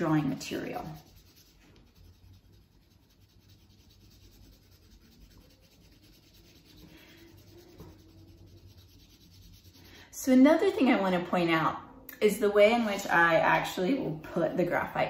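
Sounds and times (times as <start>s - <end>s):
pencil scratching on paper: 0.0s - 10.1s.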